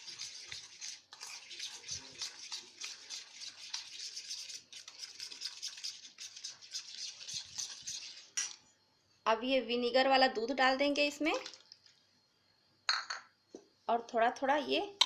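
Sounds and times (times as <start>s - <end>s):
spoon scraping metal bowl: 0.0s - 8.6s.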